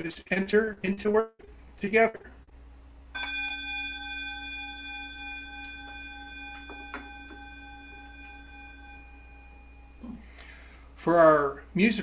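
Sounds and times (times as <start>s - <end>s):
metal singing bowl ringing: 3.1s - 10.0s.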